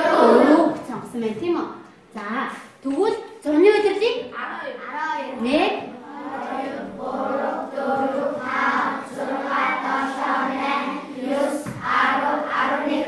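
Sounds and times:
children reading aloud in unison: 0.0 - 1.1, 4.2 - 13.0.

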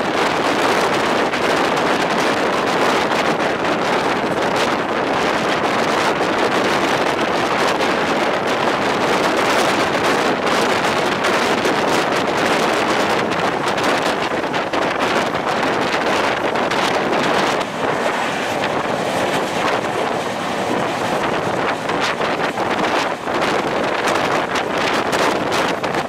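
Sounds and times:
train running at speed: 0.0 - 26.0
wind on microphone: 0.0 - 26.0.

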